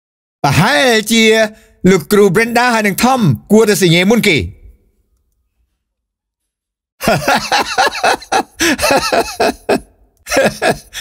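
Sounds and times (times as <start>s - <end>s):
man laughing: 7.0s - 11.0s.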